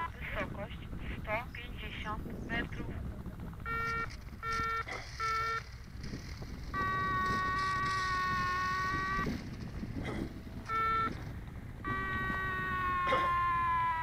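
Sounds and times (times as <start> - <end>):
long steady electronic tone: 3.4 - 14.0.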